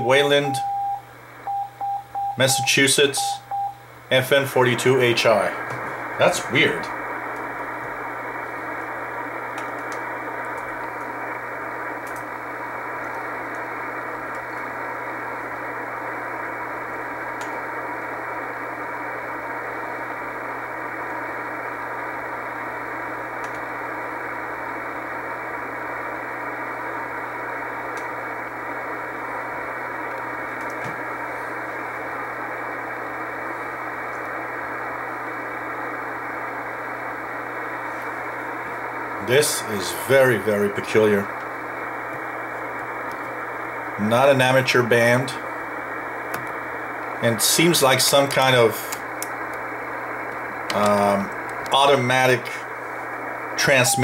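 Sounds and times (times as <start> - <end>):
slow morse code signal: 0.0 - 3.8, 53.6 - 54.0
muffled radio band hiss: 0.0 - 54.0.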